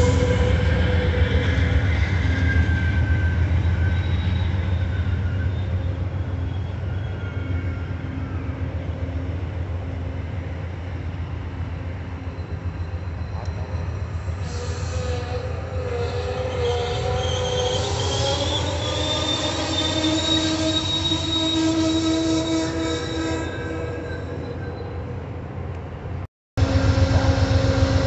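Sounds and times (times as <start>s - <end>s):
faint wheel squeal: 0.0s - 8.5s, 12.2s - 25.2s
train wheels rumbling on rails: 0.0s - 28.0s.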